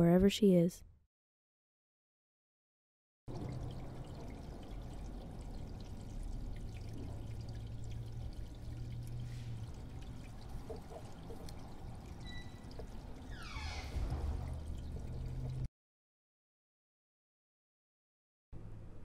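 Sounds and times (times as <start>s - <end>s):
low steady hum: 3.3s - 15.7s.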